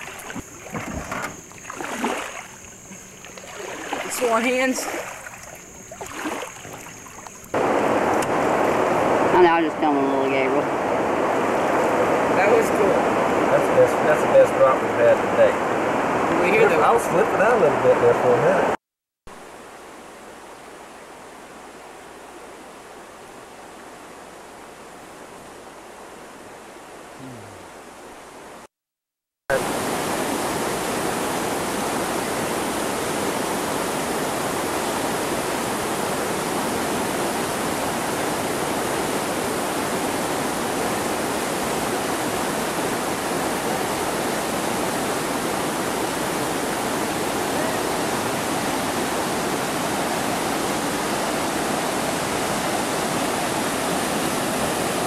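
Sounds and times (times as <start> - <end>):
river rapids rushing: 0.0 - 18.0, 29.5 - 55.0.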